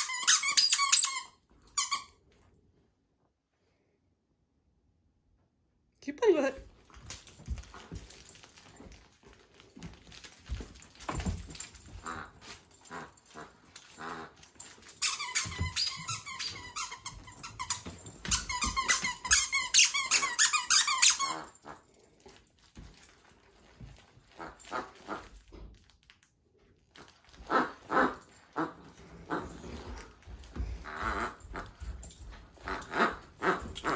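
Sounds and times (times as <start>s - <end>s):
dog toy squeaking: 0.0s - 2.1s, 14.0s - 21.6s.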